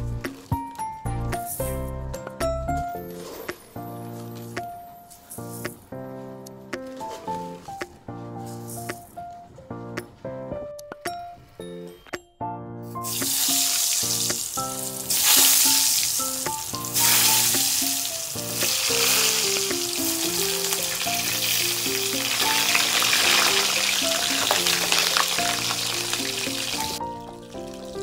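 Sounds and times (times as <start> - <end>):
background music: 0.0 - 28.0
food sizzling in hot oil: 13.0 - 28.0.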